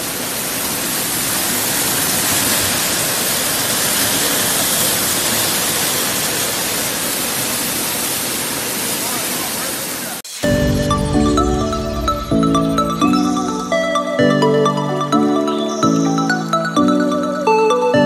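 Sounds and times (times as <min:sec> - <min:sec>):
water spraying and churning: 0:00.0 - 0:11.6.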